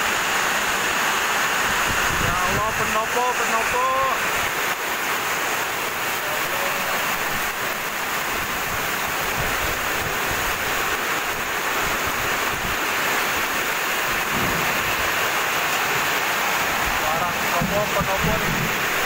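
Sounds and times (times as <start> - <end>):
strong wind and heavy rain: 0.0 - 19.0
wind buffeting microphone: 1.7 - 2.9, 7.3 - 12.8, 14.0 - 15.2, 16.9 - 19.0.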